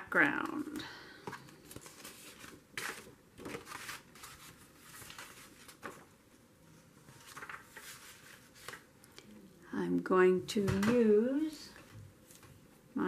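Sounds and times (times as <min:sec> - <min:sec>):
paper sheets rustling: 0:00.4 - 0:06.4, 0:07.0 - 0:08.9.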